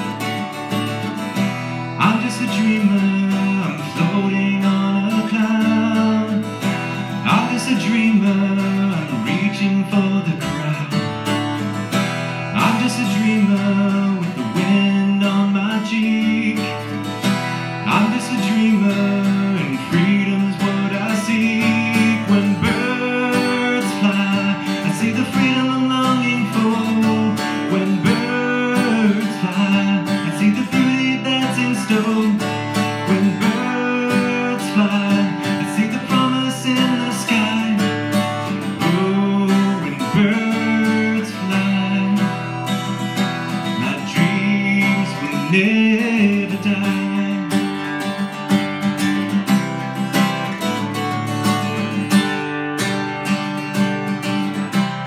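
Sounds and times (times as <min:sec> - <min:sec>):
man singing: 0:00.0 - 0:53.1
acoustic guitar strumming: 0:00.0 - 0:55.0.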